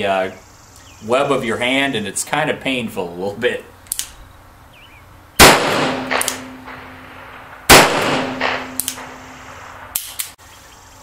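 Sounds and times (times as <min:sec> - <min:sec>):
revolver shots echoing: 0:05.4 - 0:09.9.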